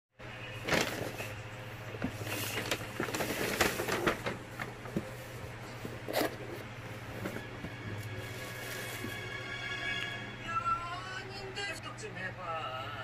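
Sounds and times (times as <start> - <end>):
cardboard box scraping paper bag: 0.6 - 1.4, 2.0 - 9.2
packing paper rustling: 0.6 - 9.3.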